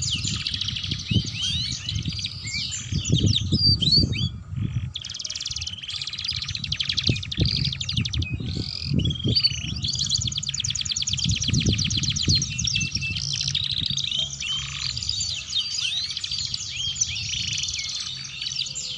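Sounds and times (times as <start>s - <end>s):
canaries singing trills: 0.0s - 18.9s
low rumble: 7.2s - 17.8s.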